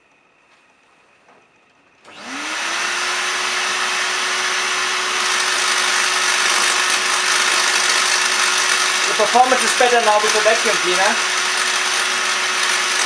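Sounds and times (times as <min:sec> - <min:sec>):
vacuum cleaner motor running: 0:02.0 - 0:13.0.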